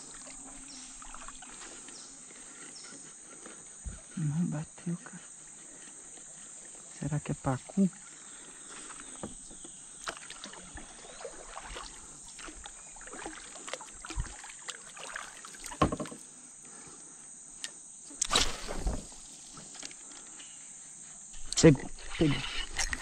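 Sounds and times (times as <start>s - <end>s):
paddle splashing in water: 0.0s - 1.9s, 8.8s - 16.2s, 18.2s - 19.2s
insects droning: 0.0s - 23.0s
knocks on kayak hull: 15.8s - 16.2s.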